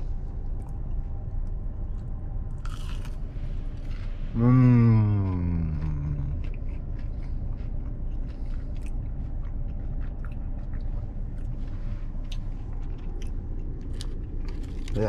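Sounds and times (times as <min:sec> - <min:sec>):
steady low hum: 0:00.0 - 0:15.0
person chewing crispy food: 0:00.4 - 0:15.0
person humming mmm: 0:04.3 - 0:06.6.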